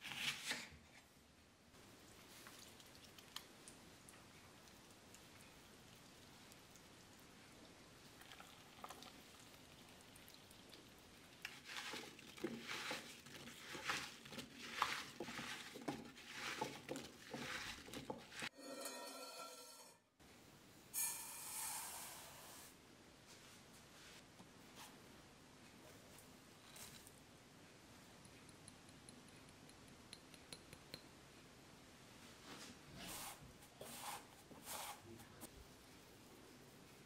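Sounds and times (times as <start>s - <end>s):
faint steady hiss: 0.9s - 11.7s, 20.2s - 37.0s
apple pieces tossed in a bowl: 11.4s - 18.5s.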